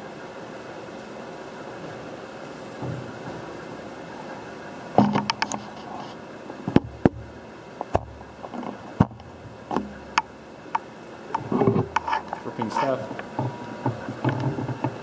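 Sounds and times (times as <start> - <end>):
steady low hum: 0.0 - 15.0
sharp mechanical clicks and knocks: 5.0 - 5.6.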